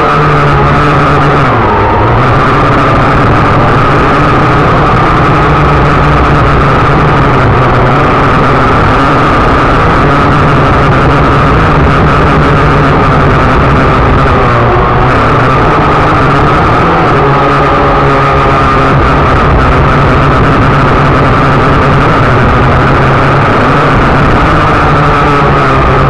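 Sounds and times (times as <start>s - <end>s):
drone motors whining: 0.0s - 26.0s.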